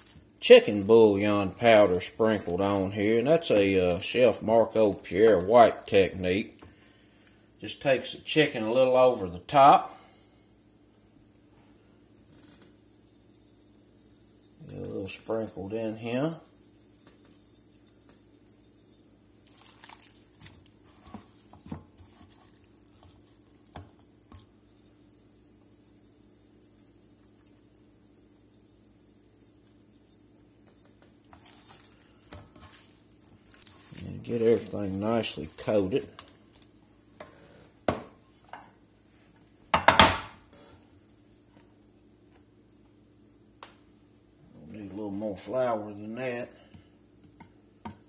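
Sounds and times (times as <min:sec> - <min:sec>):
wet squishes of chicken in bowl: 0:00.0 - 0:07.6, 0:12.8 - 0:37.2
bowl and dish knocking on wooden board: 0:39.7 - 0:40.4.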